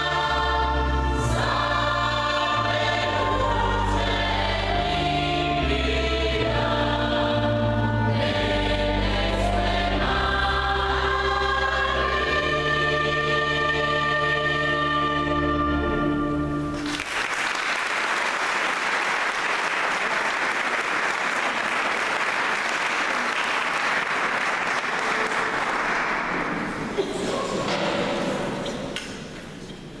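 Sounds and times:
choir holding a chord: 0:00.0 - 0:17.0
audience applauding: 0:16.8 - 0:27.1.

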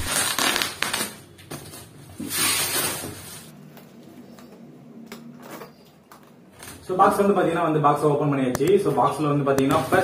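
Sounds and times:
plastic wrap crinkling: 0:00.0 - 0:03.5.

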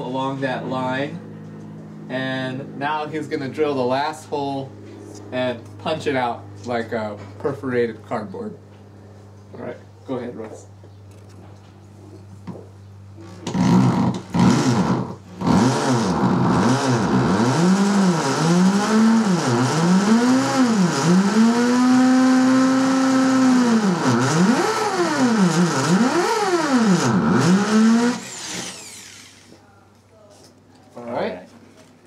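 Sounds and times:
hammer drill boring into masonry: 0:13.5 - 0:29.5.

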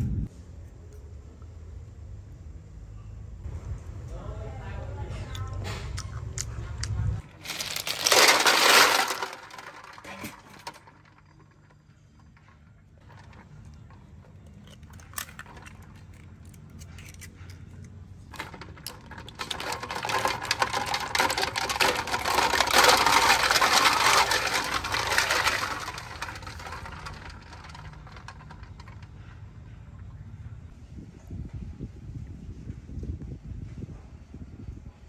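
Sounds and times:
snail shells clattering together: 0:07.2 - 0:11.8, 0:18.3 - 0:29.0.

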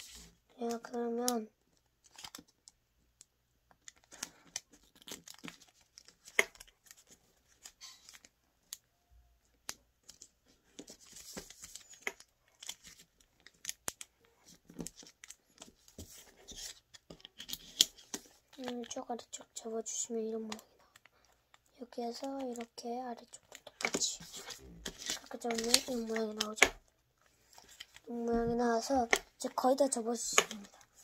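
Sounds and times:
paper folding rustles: 0:10.0 - 0:31.0.

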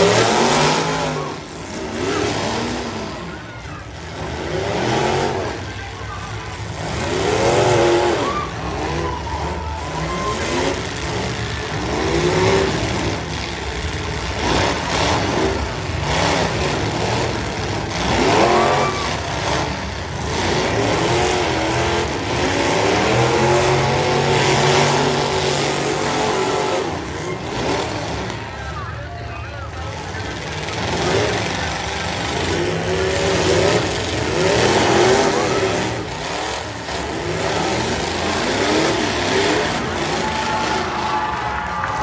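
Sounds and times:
car engines revving: 0:00.0 - 0:42.0
cars crunching together: 0:30.0 - 0:42.0.

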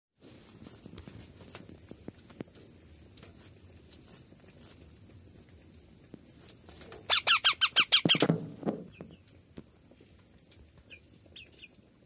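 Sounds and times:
parakeet chick harsh calls: 0:07.1 - 0:08.3.

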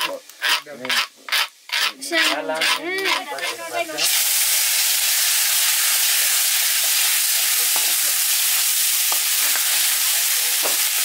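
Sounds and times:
metal ladle scraping a pan: 0:00.0 - 0:04.1
liquid sizzling in a pan: 0:00.0 - 0:11.0.

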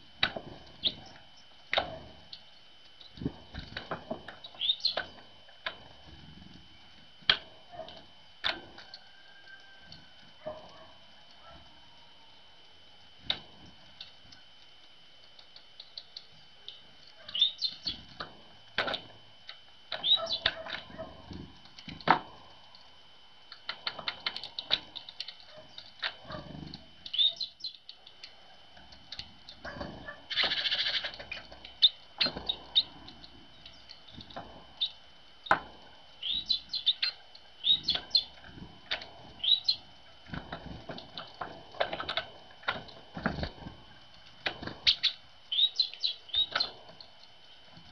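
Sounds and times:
birds chirping: 0:00.0 - 0:05.8, 0:15.3 - 0:18.3, 0:19.9 - 0:22.0, 0:23.7 - 0:47.3
wing flutters: 0:28.8 - 0:47.2.

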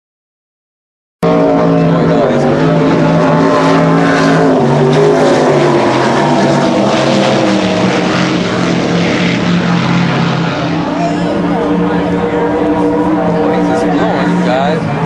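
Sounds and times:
racing powerboat engines: 0:01.2 - 0:15.0.

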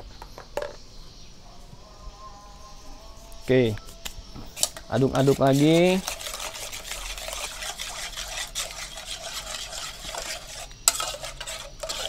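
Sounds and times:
spoon scraping saucepan: 0:04.6 - 0:12.0.

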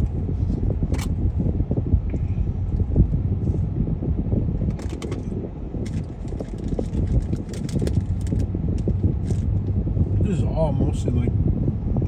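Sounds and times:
car road noise rumble: 0:00.0 - 0:12.0.

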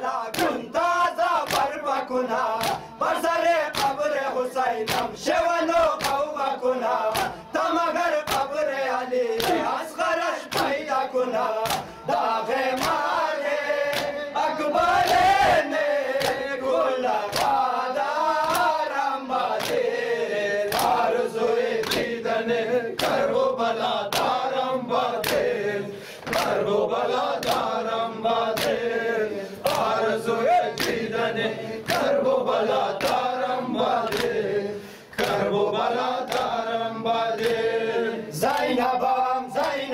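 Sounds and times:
men chanting in unison: 0:00.0 - 0:39.9
hands slapping chests: 0:00.3 - 0:00.7, 0:01.4 - 0:03.0, 0:03.7 - 0:04.1, 0:04.8 - 0:05.2, 0:05.8 - 0:07.4, 0:08.2 - 0:08.6, 0:09.4 - 0:09.8, 0:10.5 - 0:14.2, 0:14.9 - 0:17.7, 0:18.3 - 0:20.0, 0:20.6 - 0:21.2, 0:21.8 - 0:22.2, 0:22.9 - 0:23.4, 0:24.0 - 0:28.8, 0:29.6 - 0:31.2, 0:31.8 - 0:34.4, 0:35.1 - 0:35.5, 0:36.2 - 0:36.6, 0:37.4 - 0:37.7.

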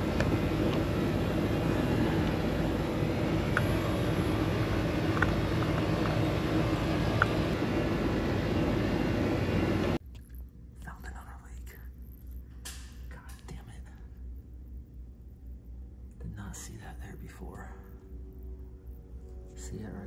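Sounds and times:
loud mechanical drone: 0:00.0 - 0:10.0.

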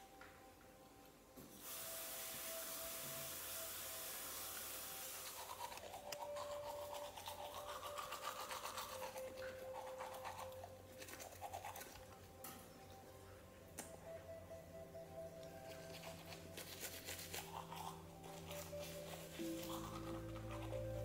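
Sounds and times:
steady hiss: 0:01.4 - 0:06.2
toothbrush scrubbing teeth: 0:04.4 - 0:12.4, 0:15.4 - 0:21.0.

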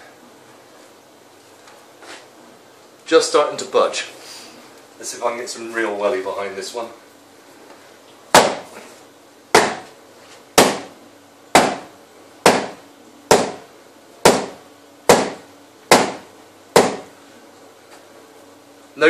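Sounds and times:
shoe banging against wall: 0:08.4 - 0:08.7, 0:09.6 - 0:09.9, 0:10.6 - 0:10.9, 0:12.5 - 0:13.6, 0:14.3 - 0:16.2, 0:16.8 - 0:17.1.

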